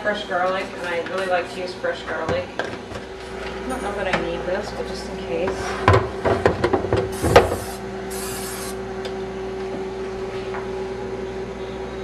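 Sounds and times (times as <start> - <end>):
steady low hum: 0.0 - 12.0
aerosol cooking spray hissing: 7.2 - 8.8.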